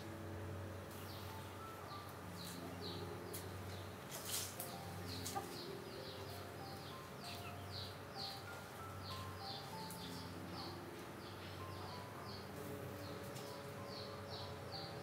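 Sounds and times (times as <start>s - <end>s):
soft music of held notes: 0.0s - 15.0s
small birds chirping: 0.8s - 15.0s
rustle: 3.3s - 11.2s.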